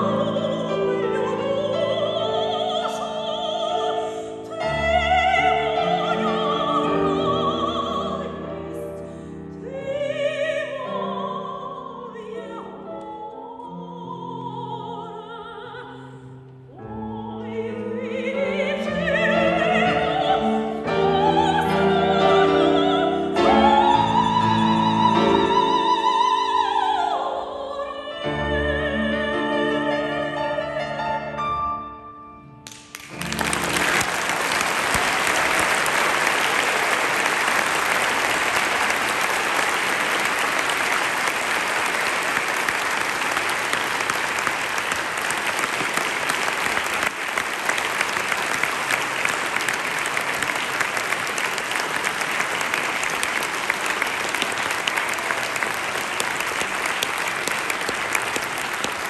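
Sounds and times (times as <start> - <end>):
audience applauding: 32.7 - 59.0.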